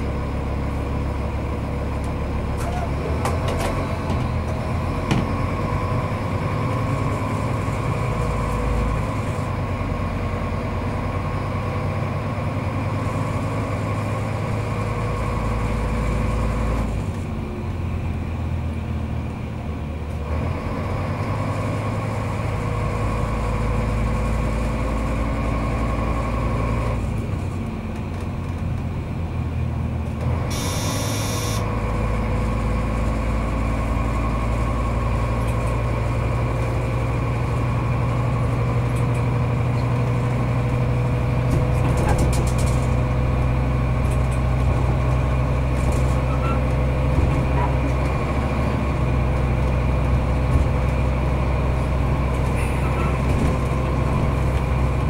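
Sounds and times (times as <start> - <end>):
train engine rumble: 0.0 - 55.0
steady whine: 30.5 - 31.6.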